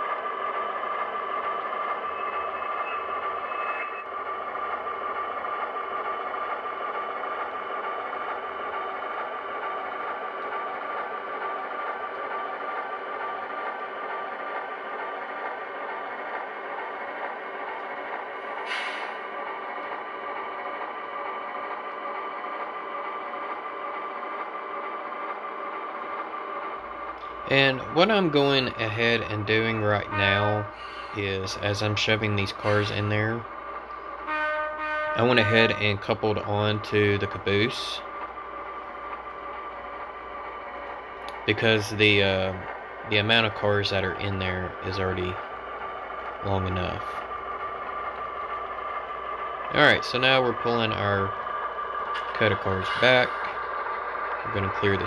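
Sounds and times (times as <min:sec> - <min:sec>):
model locomotive running: 0:00.0 - 0:55.0
high whine: 0:46.2 - 0:55.0.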